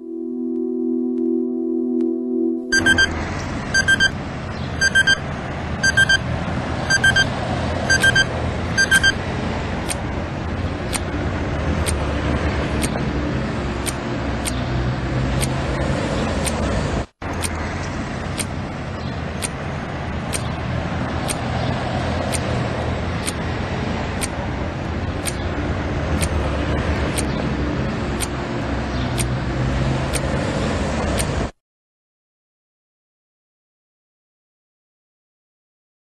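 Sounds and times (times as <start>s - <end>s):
rushing rumbling noise: 2.7s - 31.5s
clock ticking: 3.8s - 4.2s, 4.8s - 5.2s, 5.8s - 9.2s, 9.8s - 10.1s, 10.9s - 11.1s, 11.8s - 12.1s, 12.7s - 13.1s, 13.8s - 14.6s, 15.4s - 15.6s, 16.4s - 16.7s, 18.3s - 18.6s, 19.4s - 19.6s, 20.3s - 20.6s, 21.2s - 21.5s, 22.2s - 22.6s, 23.2s - 23.4s, 24.2s - 24.4s, 25.2s - 25.4s, 26.1s - 26.4s, 27.1s - 27.4s, 28.2s - 28.4s, 29.1s - 29.4s, 30.1s - 30.3s, 31.1s - 31.4s.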